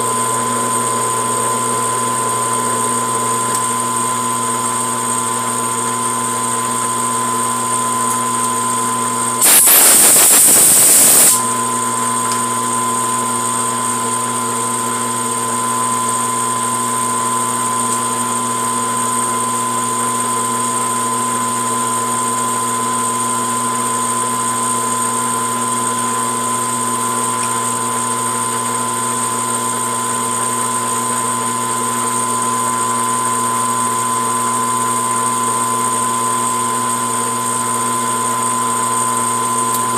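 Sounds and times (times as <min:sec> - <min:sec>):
metal lathe motor whine: 0:01.0 - 0:12.0
loud hissing: 0:09.4 - 0:11.4.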